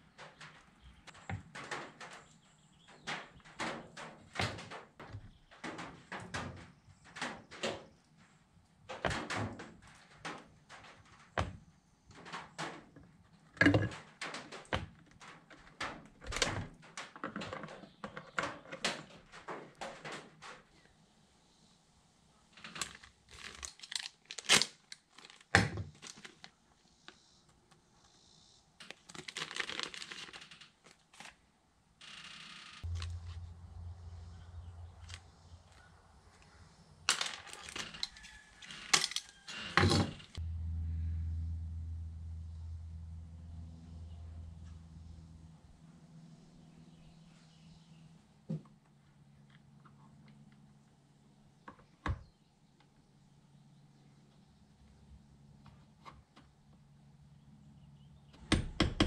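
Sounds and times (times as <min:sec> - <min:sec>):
plastic bag crinkling: 0:22.6 - 0:26.6, 0:28.8 - 0:31.4, 0:32.8 - 0:33.9, 0:37.1 - 0:39.5
plastic and metal parts clicking: 0:37.1 - 0:40.2.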